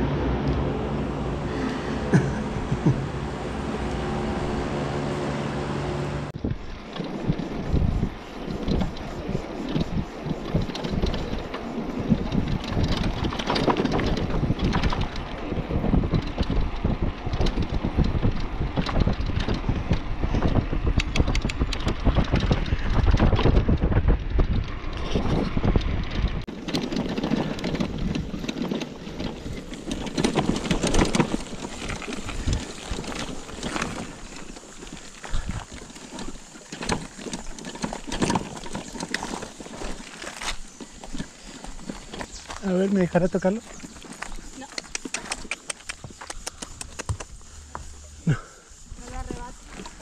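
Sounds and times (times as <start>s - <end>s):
wind buffeting microphone: 6.2s - 50.0s
bicycle rattling: 6.3s - 50.0s
tyres crunching on dirt track: 6.3s - 50.0s.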